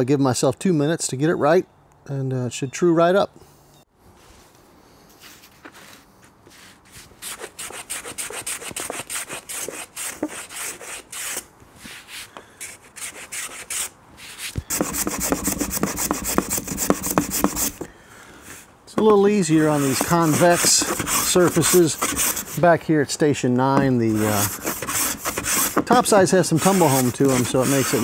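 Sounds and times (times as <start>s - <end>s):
hand plane shaving wood: 7.3s - 17.9s, 19.0s - 22.7s, 23.8s - 28.0s.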